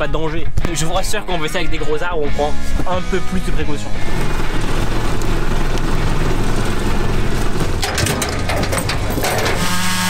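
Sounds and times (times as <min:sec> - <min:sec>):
tractor engine running: 0:03.8 - 0:10.0.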